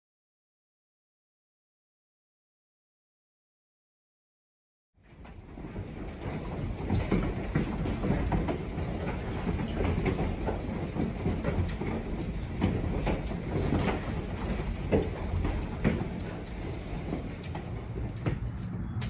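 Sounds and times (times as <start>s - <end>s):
heavy rain on a window pane: 5.0s - 18.4s.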